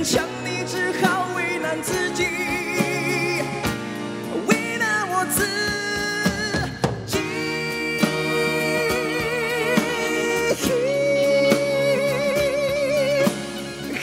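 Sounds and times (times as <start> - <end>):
band playing: 0.0 - 14.0
man singing with vibrato: 0.0 - 14.0.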